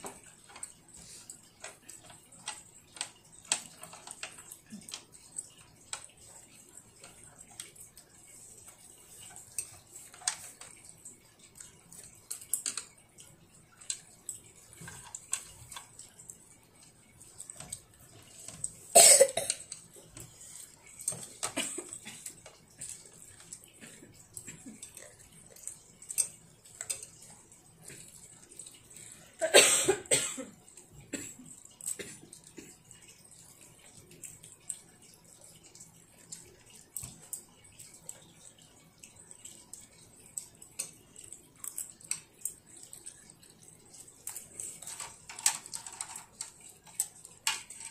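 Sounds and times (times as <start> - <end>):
person coughing: 18.9 - 19.6, 29.4 - 30.6.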